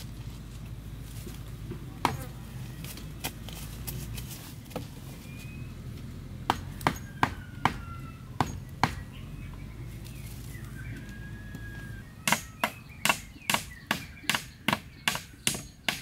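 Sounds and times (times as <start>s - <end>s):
hatchet chopping wood: 2.0s - 2.3s, 6.5s - 9.1s, 12.2s - 16.0s.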